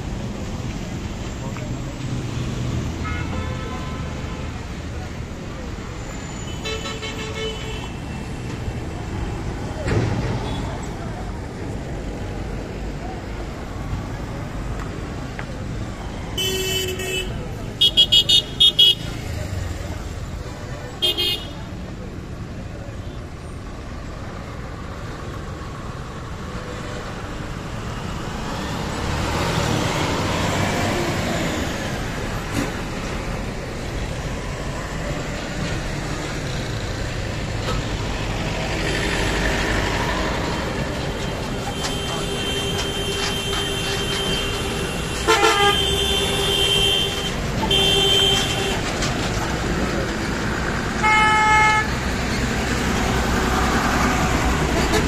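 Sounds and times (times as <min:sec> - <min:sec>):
truck and car engines: 0:00.0 - 0:55.0
tyres on road: 0:00.0 - 0:55.0
vehicle horns: 0:03.0 - 0:04.5, 0:06.4 - 0:08.0, 0:16.4 - 0:19.2, 0:21.0 - 0:21.7, 0:41.4 - 0:49.1, 0:51.0 - 0:52.0.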